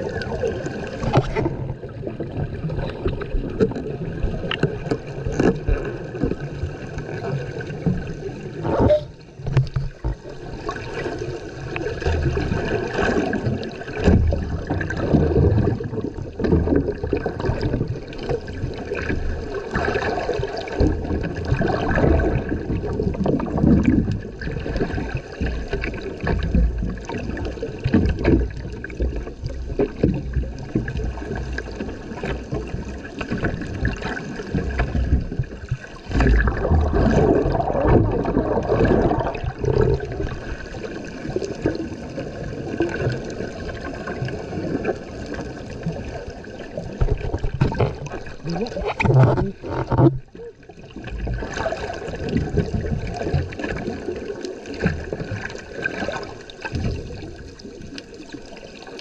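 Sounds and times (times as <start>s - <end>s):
underwater water sloshing and gurgling: 0.0s - 59.0s.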